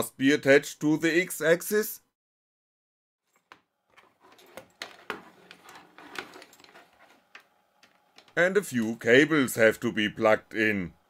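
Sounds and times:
cables rustling and handling: 3.3 - 8.9.

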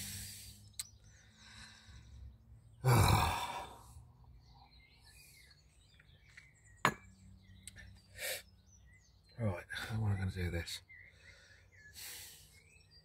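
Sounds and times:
man sighing heavily: 2.8 - 4.0.

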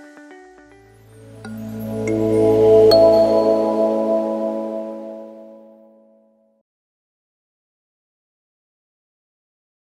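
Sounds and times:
soft ambient music: 0.0 - 6.4.

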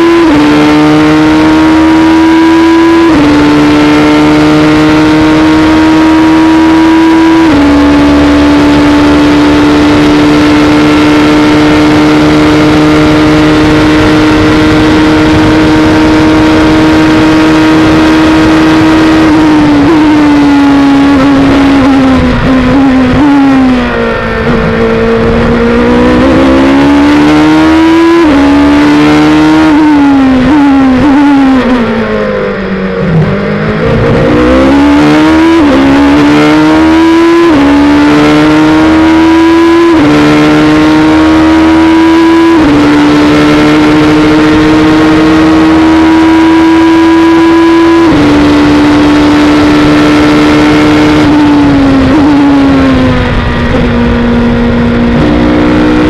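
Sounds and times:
racing engine revving and shifting: 0.0 - 56.0.

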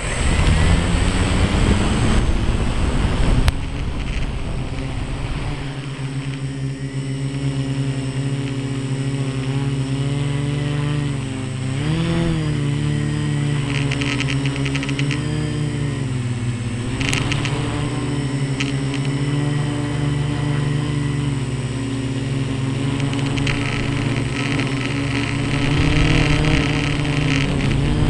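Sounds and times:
loud rushing noise: 0.0 - 7.1
drone motors buzzing hum: 0.0 - 28.0
sharp click: 16.9 - 17.7.

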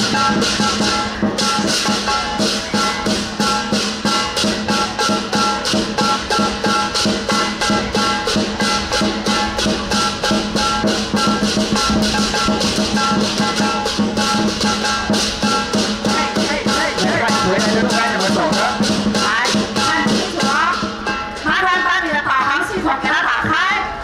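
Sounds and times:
cymbals clashing: 0.0 - 23.0
drum beating fast: 0.0 - 24.0.

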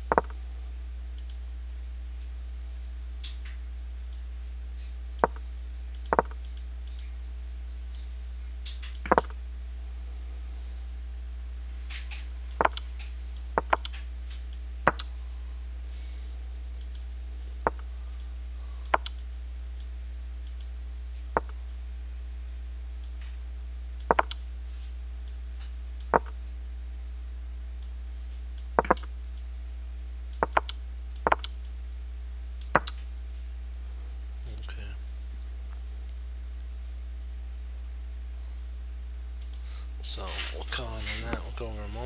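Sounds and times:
steady low hum: 0.0 - 42.0
computer mouse clicking: 1.2 - 1.4, 5.2 - 7.1, 8.7 - 9.3, 11.9 - 15.1, 16.8 - 17.1, 17.7 - 20.7, 24.0 - 24.4, 28.6 - 29.5, 30.3 - 31.8, 32.6 - 33.0, 39.4 - 39.6.

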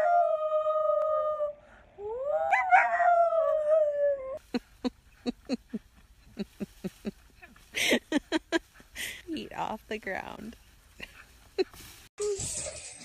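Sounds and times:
small dog howling: 0.0 - 4.4.

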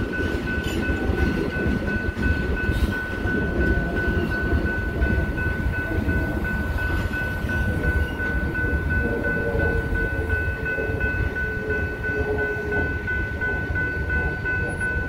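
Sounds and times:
crossing warning bell ringing: 0.0 - 15.0.

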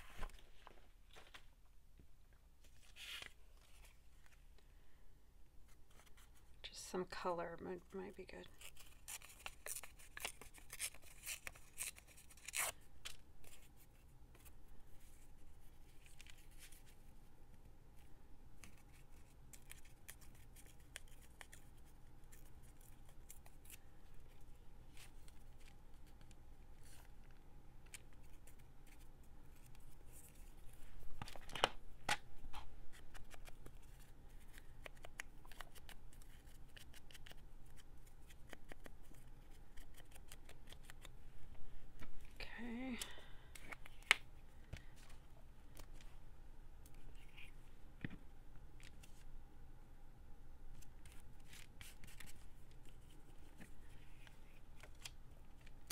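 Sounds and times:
paper rustling: 0.0 - 1.6, 2.6 - 4.5, 8.5 - 41.1, 50.8 - 55.9
scissors snipping paper: 8.5 - 13.6, 32.9 - 41.1.

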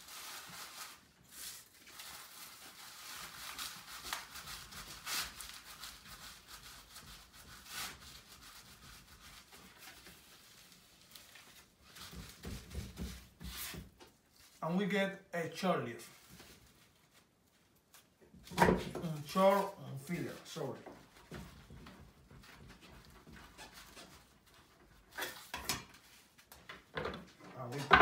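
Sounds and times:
dry leaf rustling and rubbing: 0.0 - 7.0.

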